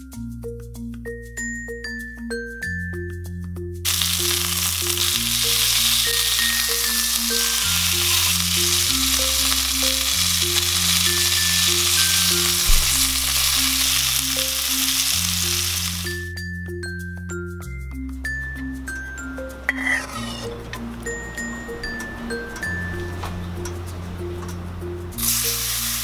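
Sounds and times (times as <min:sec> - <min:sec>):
mallet percussion music: 0:00.0 - 0:25.8
chicken sizzling in frying pan: 0:03.9 - 0:16.2, 0:25.2 - 0:26.0.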